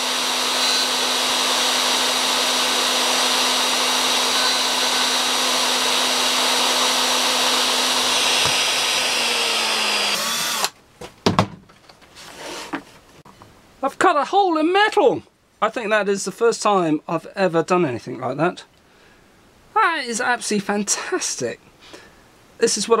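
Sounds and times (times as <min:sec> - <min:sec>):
cutter grinding metal: 0:00.0 - 0:10.7
router motor whine: 0:00.0 - 0:10.7.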